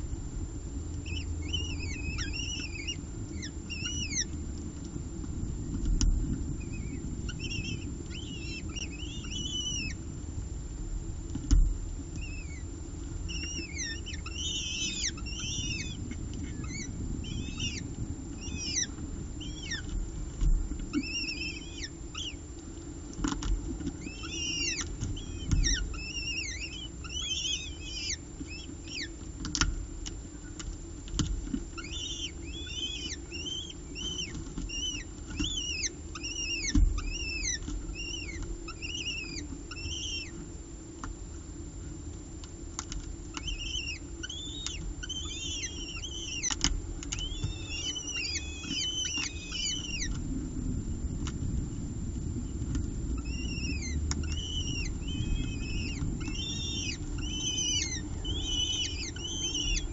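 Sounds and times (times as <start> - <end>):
low steady rumble: 0.0 - 59.9
chicks begging chirps: 1.0 - 4.5, 6.5 - 10.1, 12.1 - 22.5, 23.3 - 29.2, 31.7 - 40.4, 42.8 - 50.2, 52.8 - 59.9.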